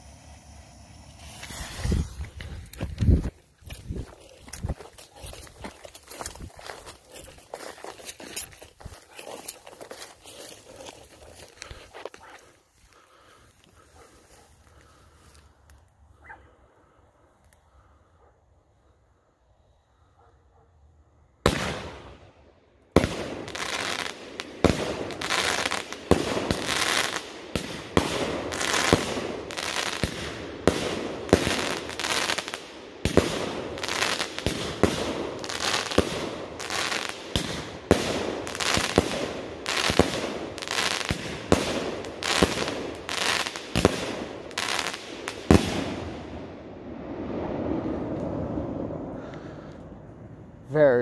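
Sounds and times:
firework bangs: 0.0s - 3.4s, 21.4s - 22.2s, 22.9s - 49.6s
firework crackle: 0.0s - 12.2s, 21.4s - 49.8s.

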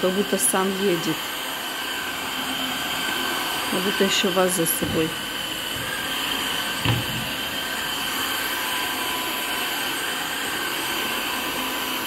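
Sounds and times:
floor washer running: 0.0s - 12.0s
short knock: 6.8s - 7.3s.

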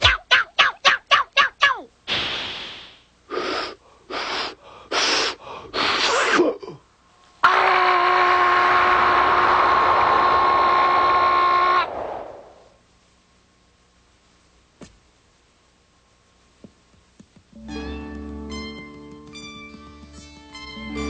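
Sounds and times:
long held tone with hiss: 2.0s - 7.5s, 8.6s - 14.6s
cartoon hissing puffs: 2.1s - 6.4s.

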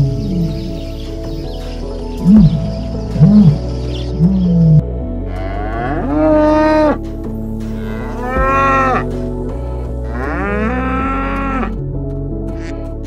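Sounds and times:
cows mooing: 4.6s - 7.0s, 7.8s - 9.1s, 10.0s - 11.8s.

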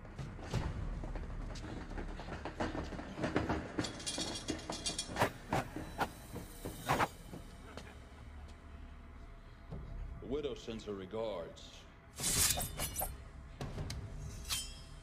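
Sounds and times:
heavy chain rattling over metal: 2.6s - 5.2s.

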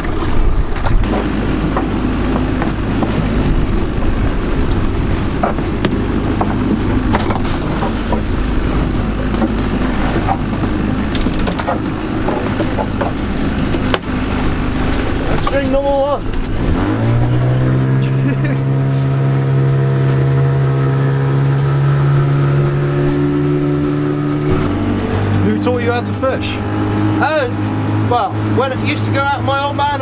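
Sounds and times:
outboard motor running: 0.0s - 30.0s
water rushing past: 0.0s - 30.0s
wind rushing: 0.3s - 12.3s
gear knocking on deck: 9.3s - 13.2s.

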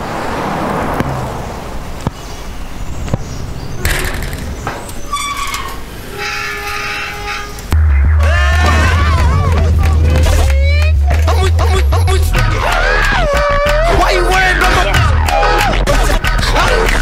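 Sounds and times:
street traffic: 0.0s - 17.0s
car horn sounding: 6.1s - 8.5s.

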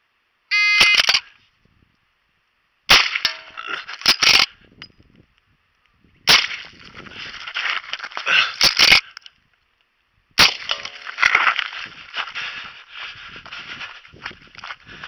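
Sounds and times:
rifle shots: 2.9s - 3.4s
ringing of a steel target: 3.2s - 3.6s.

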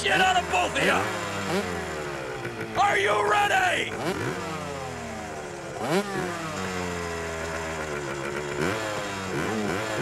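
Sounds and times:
dirt bike engines revving: 0.0s - 10.0s.

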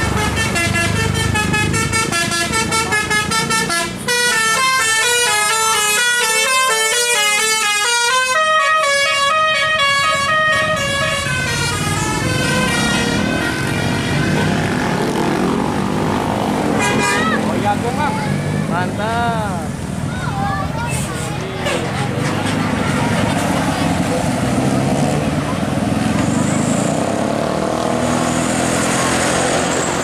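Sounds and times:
multi-tone bus horn melody: 0.0s - 15.6s, 16.6s - 17.6s, 21.6s - 23.6s
passing traffic: 0.0s - 30.0s.

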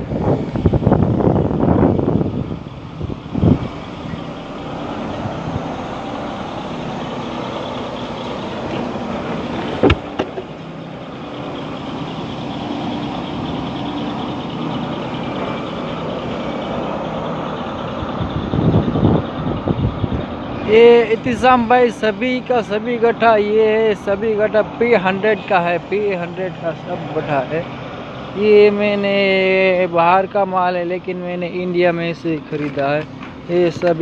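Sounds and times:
vehicle engine idling: 0.0s - 34.0s
sharp knock: 9.8s - 10.5s.

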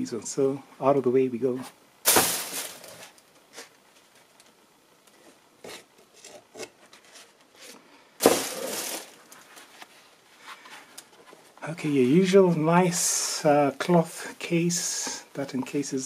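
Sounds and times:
cardboard scraping: 5.2s - 10.0s.

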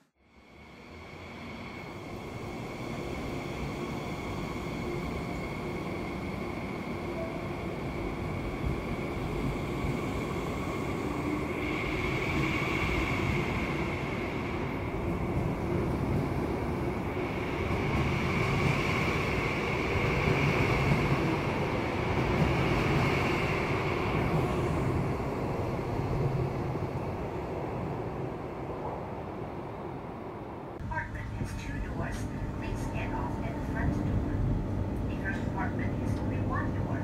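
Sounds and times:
high steady train whine: 0.0s - 37.0s
train wheels rumbling on rails: 0.7s - 28.0s.

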